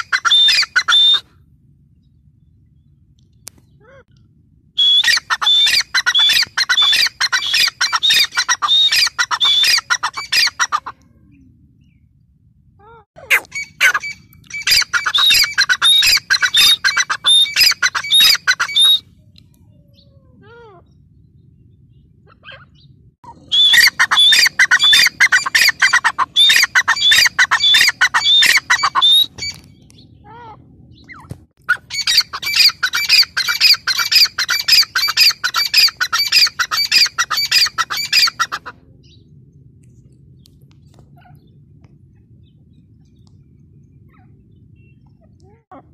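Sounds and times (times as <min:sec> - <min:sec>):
bird calling high-pitched notes: 0:13.3 - 0:19.1, 0:22.4 - 0:29.9.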